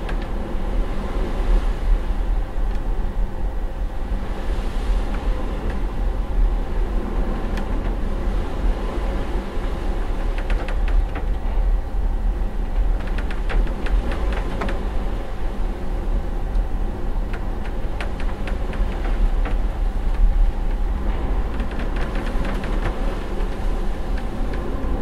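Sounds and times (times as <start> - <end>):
ship engine rumbling: 0.0 - 25.0
small clicks and rattles: 10.2 - 11.4, 12.7 - 14.9, 17.3 - 20.8, 21.5 - 24.7.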